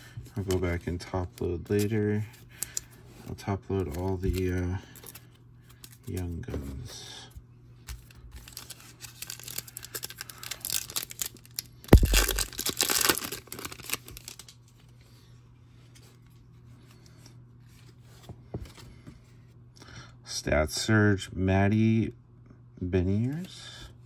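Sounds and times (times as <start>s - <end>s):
foil wrapper crinkling: 8.0s - 14.7s
foil pack tearing open: 8.4s - 14.5s.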